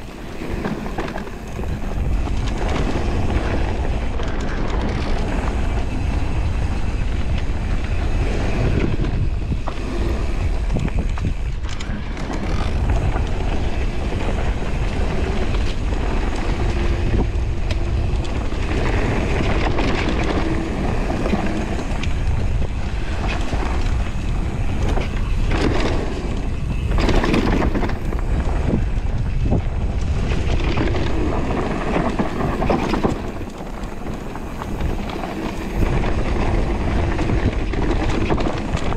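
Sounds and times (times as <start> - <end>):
bike knocking and rattling: 0.0 - 38.9
bike tyre noise on dirt: 0.0 - 38.9
wind buffeting microphone: 0.0 - 38.9.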